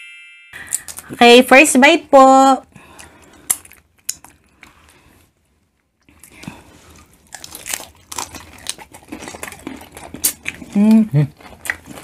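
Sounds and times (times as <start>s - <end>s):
people chewing shell-on shrimp: 2.7s - 12.0s.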